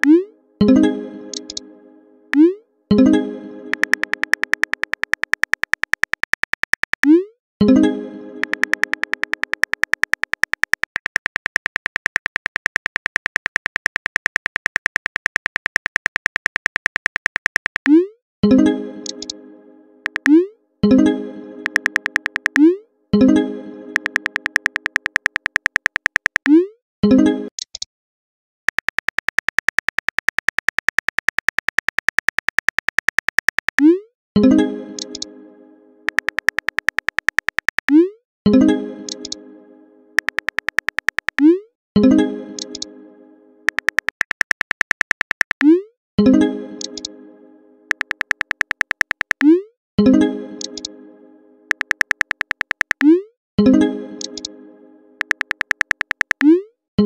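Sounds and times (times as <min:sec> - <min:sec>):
phone keyboard typing clicks: 0:01.3 - 0:01.6, 0:03.7 - 0:07.2, 0:08.4 - 0:18.0, 0:19.0 - 0:19.4, 0:20.0 - 0:20.4, 0:21.6 - 0:22.7, 0:24.0 - 0:26.6, 0:28.7 - 0:33.9, 0:35.0 - 0:35.3, 0:36.1 - 0:38.0, 0:40.2 - 0:41.5, 0:42.6 - 0:42.9, 0:43.7 - 0:45.8, 0:46.8 - 0:47.1, 0:47.9 - 0:49.6, 0:50.6 - 0:50.9, 0:51.7 - 0:53.2, 0:54.2 - 0:54.5, 0:55.2 - 0:56.5.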